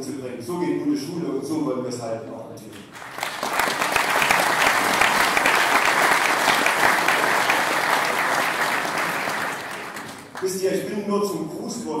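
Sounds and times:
audience applauding: 0:02.9 - 0:10.6.

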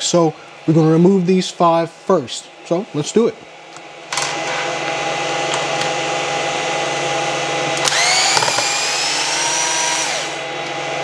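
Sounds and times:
cordless screwdriver running: 0:07.8 - 0:10.4.

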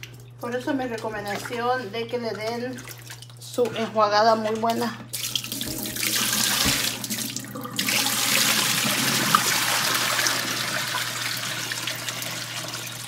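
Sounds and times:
water pouring into metal sink: 0:04.4 - 0:13.0.

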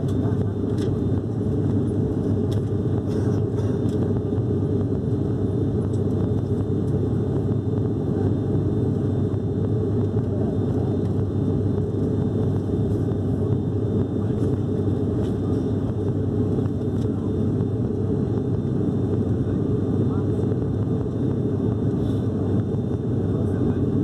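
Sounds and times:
turboprop engines droning in cabin: 0:00.0 - 0:24.0.

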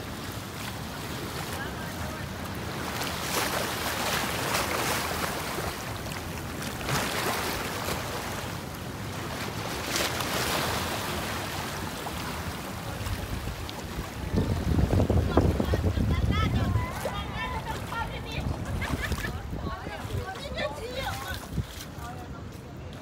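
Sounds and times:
ocean surf washing up beach: 0:00.0 - 0:22.6
wind rumbling on microphone: 0:11.1 - 0:23.0.

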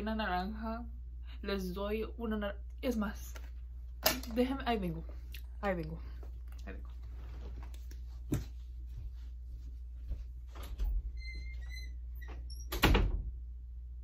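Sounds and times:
steady low hum: 0:00.0 - 0:14.0
footsteps: 0:06.2 - 0:10.8
door hinge squeaking: 0:11.1 - 0:13.1
door shutting with thump: 0:12.3 - 0:13.3.

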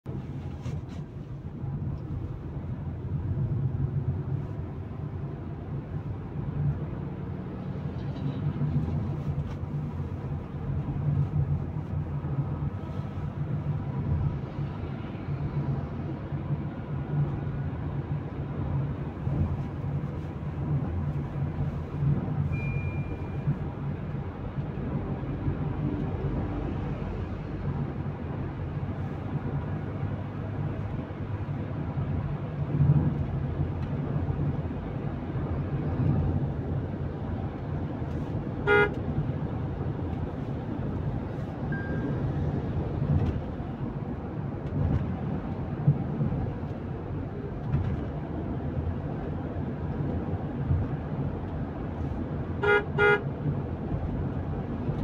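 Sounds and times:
road and engine noise in car cabin: 0:00.0 - 0:55.0.

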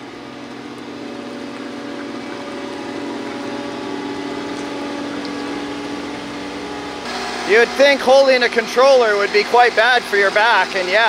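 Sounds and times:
diesel loader engine running: 0:00.0 - 0:11.0.

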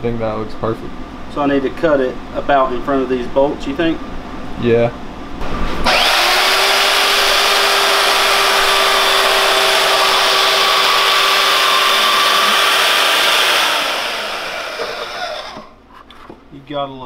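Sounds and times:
band saw cutting plastic: 0:05.8 - 0:15.8.

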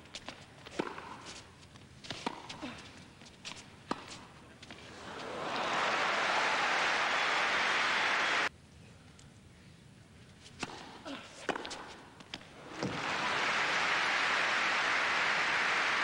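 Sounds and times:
crowd applause: 0:04.9 - 0:08.5, 0:12.6 - 0:16.0
tennis ball racket hits: 0:10.5 - 0:13.1.

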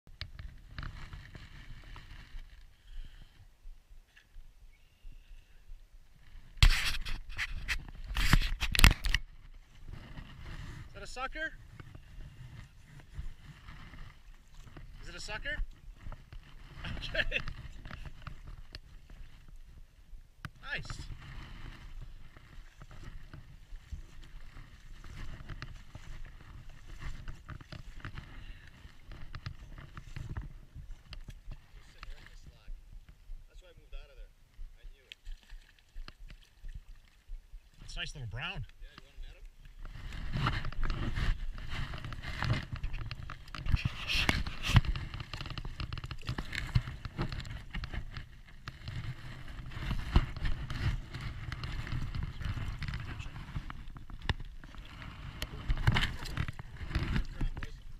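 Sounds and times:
wind rumbling on microphone: 0:00.1 - 0:57.9
fish splashing in shallow water: 0:35.0 - 0:37.8, 0:39.4 - 0:57.9.

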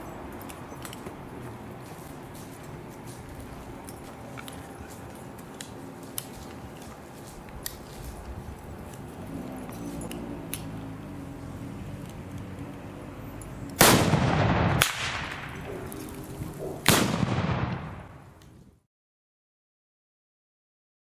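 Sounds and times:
cannon shots with echo: 0:13.8 - 0:18.2.

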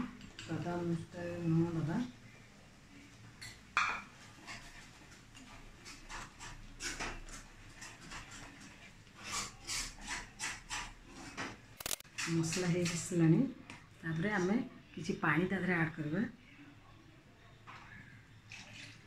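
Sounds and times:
wooden spatula scraping pot: 0:04.0 - 0:13.3.

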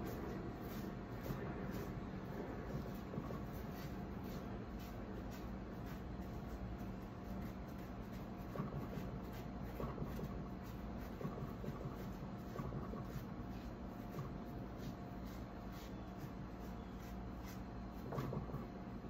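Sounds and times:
paintbrush strokes on wood: 0:00.0 - 0:19.0
steady low hum: 0:00.0 - 0:19.0.

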